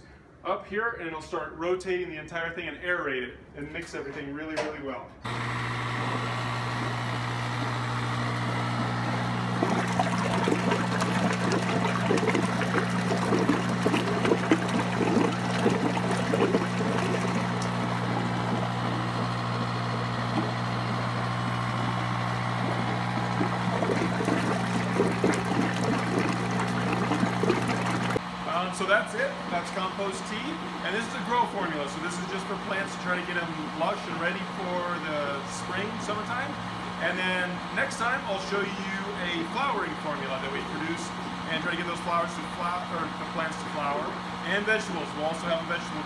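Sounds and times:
water gurgling and splashing: 0:05.3 - 0:28.2
electric air pump humming: 0:05.3 - 0:28.7.

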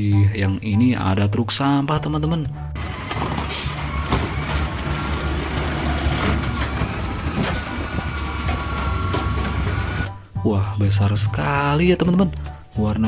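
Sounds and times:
metal clanks: 0:02.8 - 0:10.1
garbage truck engine humming: 0:02.8 - 0:10.2
hydraulic arm lifting cart: 0:02.8 - 0:10.2.

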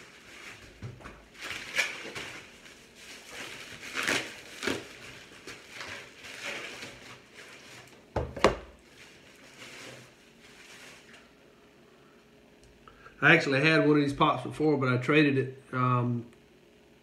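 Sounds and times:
plastic wrap crinkling: 0:00.0 - 0:08.2, 0:08.8 - 0:11.4.

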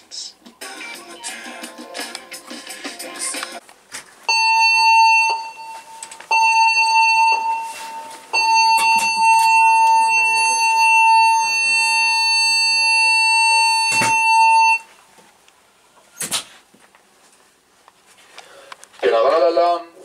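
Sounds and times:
electronic alarm tones: 0:04.3 - 0:14.9.

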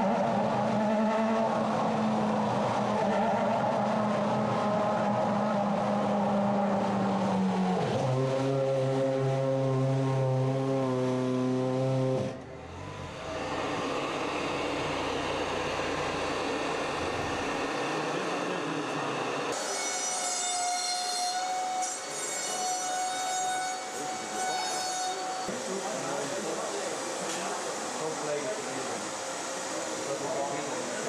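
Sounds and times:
racing car engine at low revs: 0:00.0 - 0:19.5.

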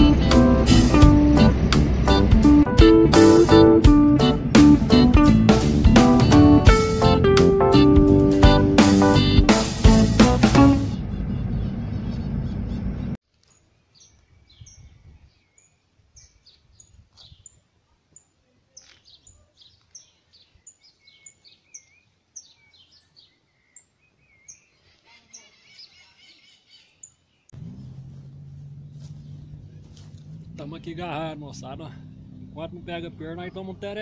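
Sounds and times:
guitar music: 0:00.0 - 0:11.0
birds chirping: 0:10.1 - 0:34.0
steady low hum: 0:27.6 - 0:33.8
lower warbling bird notes: 0:27.6 - 0:34.0.

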